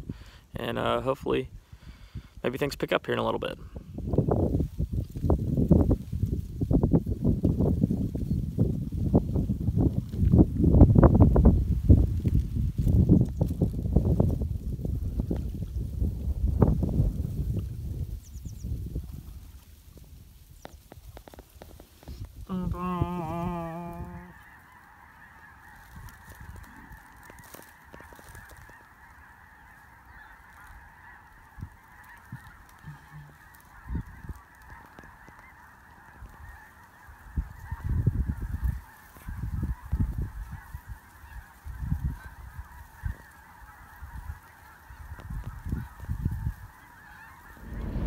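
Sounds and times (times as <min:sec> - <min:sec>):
geese honking overhead: 0:22.4 - 0:48.0
low rumbles: 0:47.3 - 0:48.0.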